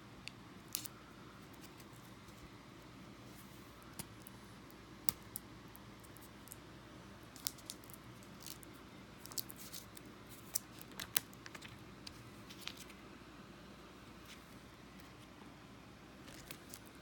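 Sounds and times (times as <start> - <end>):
faint room hum: 0.0 - 17.0
small objects clicking and tapping: 7.4 - 11.7.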